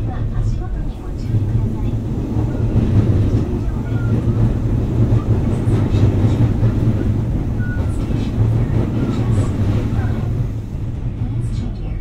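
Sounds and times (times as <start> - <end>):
train wheels rumbling: 0.0 - 12.0
faint squeals: 7.5 - 8.4.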